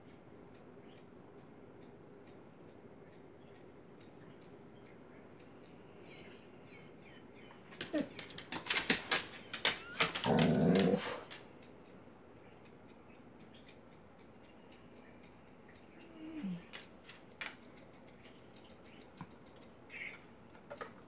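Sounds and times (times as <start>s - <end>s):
dog yelping: 7.7s - 11.3s
dog growling: 10.0s - 11.3s.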